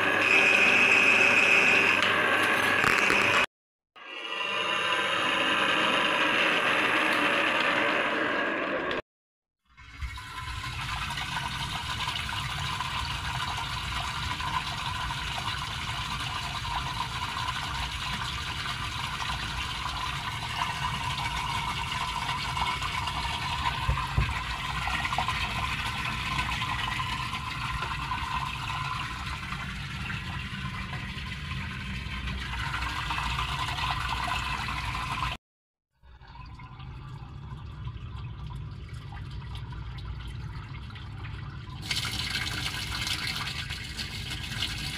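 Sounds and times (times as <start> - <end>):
water rushing from drain pipe: 9.6 - 35.4, 36.1 - 44.9
water splashing into concrete chamber: 41.8 - 44.9.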